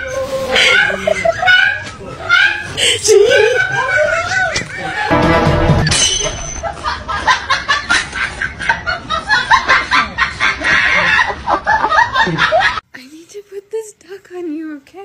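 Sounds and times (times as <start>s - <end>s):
high-pitched snickering laughter: 0.4s - 5.1s.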